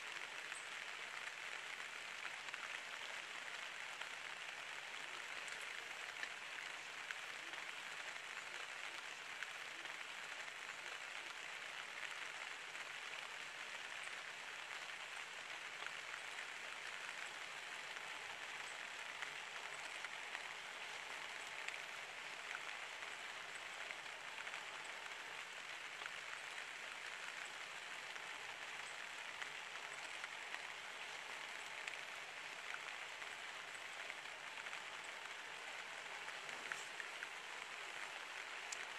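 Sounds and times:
rain falling on foliage: 0.0s - 38.9s
water dripping: 15.7s - 38.9s.

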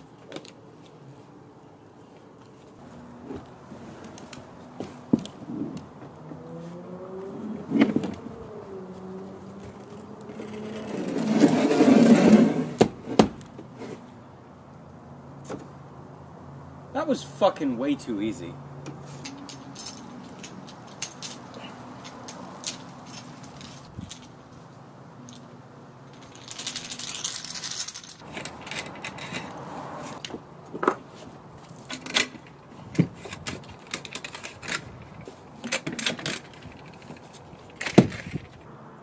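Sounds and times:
metal hardware clinking and jingling: 19.0s - 24.6s, 25.2s - 29.5s.

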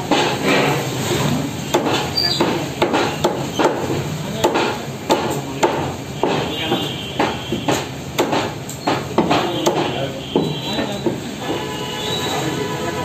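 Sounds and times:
cleaver chopping through bone: 1.7s - 6.5s, 7.2s - 10.5s.

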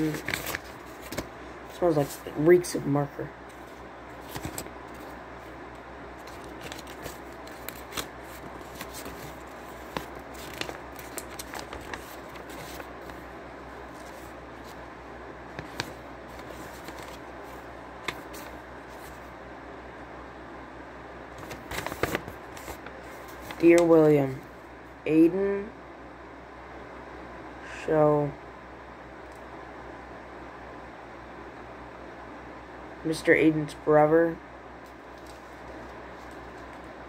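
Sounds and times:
paper rustling and crinkling: 0.0s - 2.4s, 3.5s - 5.5s, 6.2s - 13.3s, 13.9s - 14.8s, 15.5s - 19.3s, 21.3s - 24.0s, 34.9s - 36.9s.

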